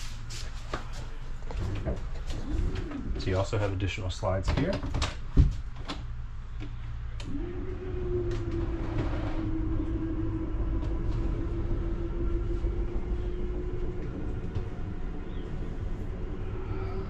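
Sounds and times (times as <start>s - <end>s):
electric motor humming: 7.1s - 17.0s.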